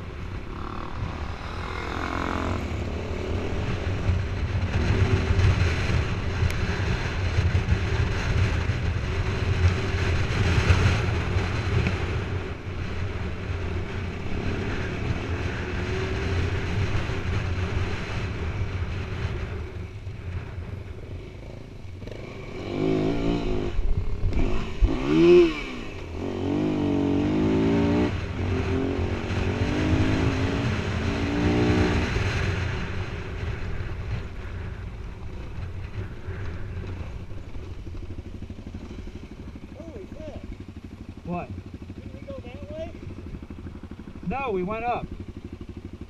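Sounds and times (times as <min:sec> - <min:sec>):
wind noise: 0:00.0 - 0:40.4
motorcycle engine revving: 0:00.0 - 0:46.0.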